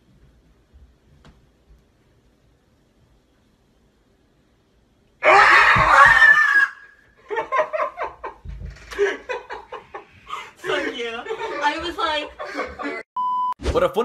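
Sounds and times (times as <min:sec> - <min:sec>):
woman screaming: 0:05.2 - 0:07.0.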